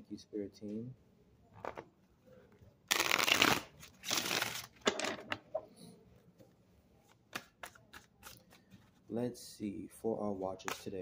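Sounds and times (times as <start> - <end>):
cards riffle-shuffled: 2.9 - 4.9.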